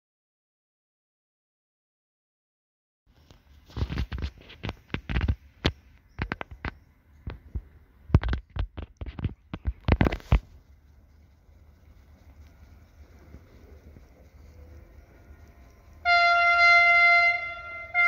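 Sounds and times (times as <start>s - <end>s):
sharp knocks and thumps: 3.8s - 10.6s
faint steady hum: 9.5s - 18.0s.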